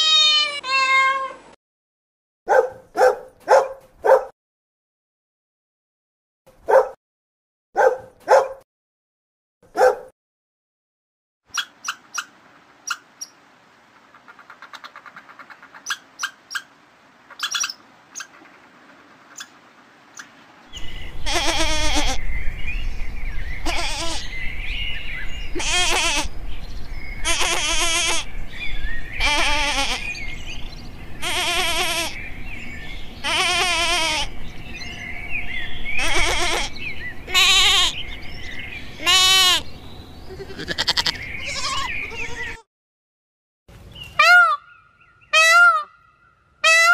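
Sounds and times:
goat bleating: 0:00.0 - 0:01.4, 0:21.2 - 0:22.2, 0:23.6 - 0:24.3, 0:25.6 - 0:26.3, 0:27.2 - 0:28.3, 0:29.2 - 0:30.1, 0:31.2 - 0:32.2, 0:33.2 - 0:34.3, 0:36.0 - 0:38.0, 0:39.0 - 0:39.6, 0:40.3 - 0:42.6
dog barking: 0:02.5 - 0:04.4, 0:06.6 - 0:07.0, 0:07.8 - 0:08.7, 0:09.7 - 0:10.1.

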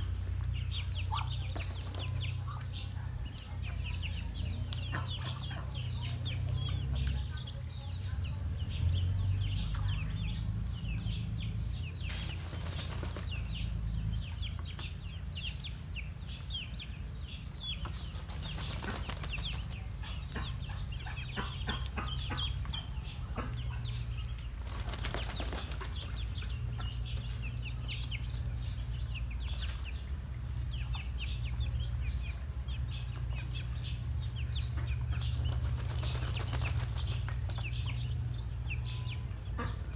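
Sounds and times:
ducklings peeping: 0:00.0 - 0:39.9.

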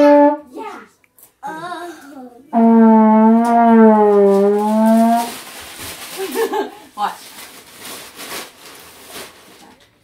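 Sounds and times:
trombone notes: 0:00.0 - 0:00.5, 0:02.5 - 0:05.3.

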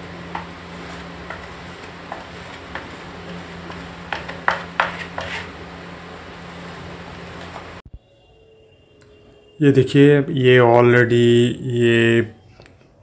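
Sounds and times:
steady low hum: 0:00.0 - 0:12.4
spreader scraping glue on wood: 0:00.2 - 0:05.6.

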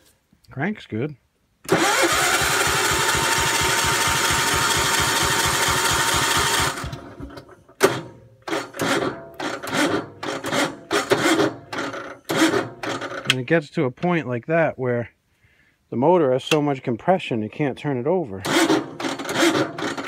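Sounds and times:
electric starter cranking engine: 0:01.7 - 0:13.4, 0:18.4 - 0:20.0.

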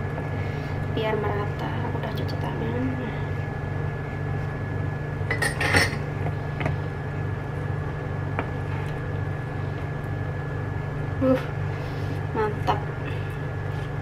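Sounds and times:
steady low hum: 0:00.0 - 0:14.0
kitchenware clinks and knocks: 0:05.3 - 0:06.0.

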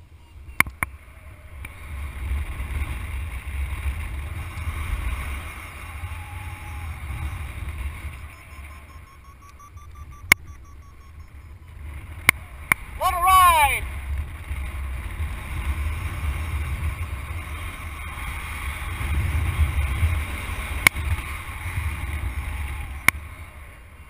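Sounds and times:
wind buffeting microphone: 0:00.4 - 0:13.1, 0:13.7 - 0:24.0
sharp clicks: 0:08.0 - 0:11.4.

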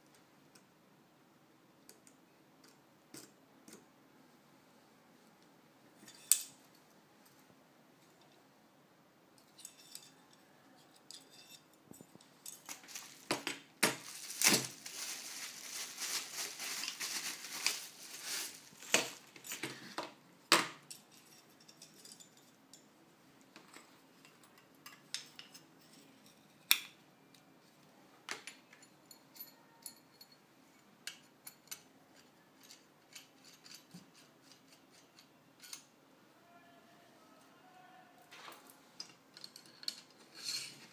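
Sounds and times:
crackly rustling: 0:11.2 - 0:20.0.

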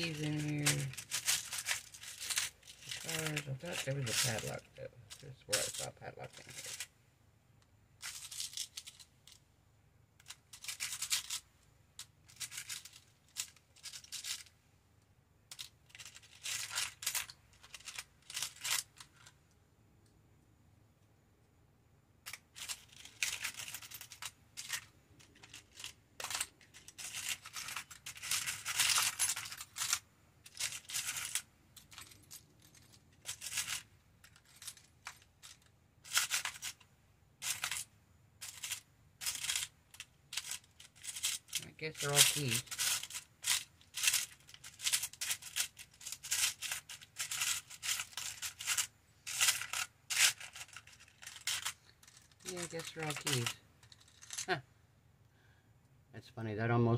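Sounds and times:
small metal charms clinking: 0:00.0 - 0:06.9, 0:22.3 - 0:36.8, 0:37.4 - 0:54.6.

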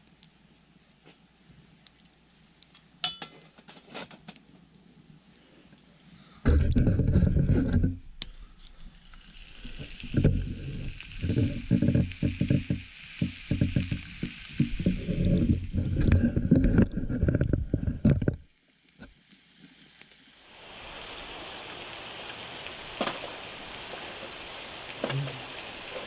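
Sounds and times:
meat sizzling in a frying pan: 0:08.7 - 0:16.0, 0:18.7 - 0:26.0.

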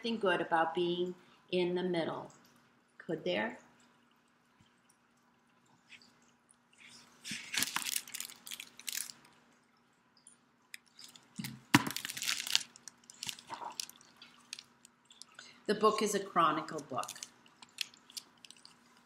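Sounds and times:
paper rustling and crackling: 0:06.8 - 0:09.3, 0:10.9 - 0:15.3, 0:16.9 - 0:18.8.

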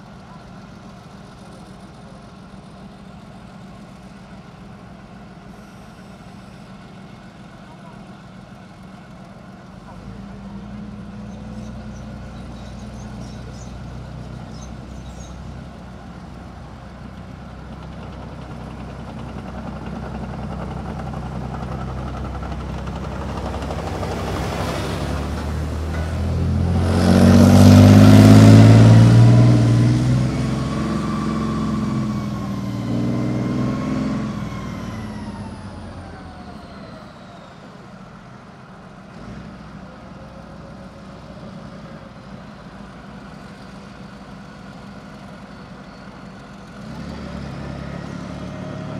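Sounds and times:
tracked vehicle diesel engine: 0:00.0 - 0:48.9
track noise: 0:17.1 - 0:38.3.

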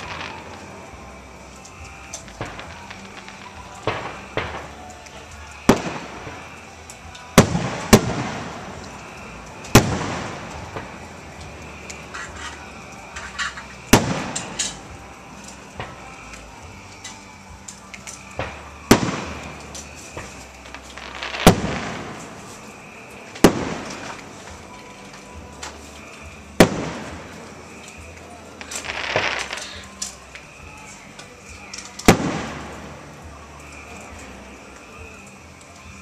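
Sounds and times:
small firework pops: 0:01.6 - 0:06.6, 0:07.2 - 0:32.9
firework shells bursting: 0:07.2 - 0:16.4, 0:17.9 - 0:25.8, 0:26.6 - 0:30.6, 0:31.6 - 0:32.9.

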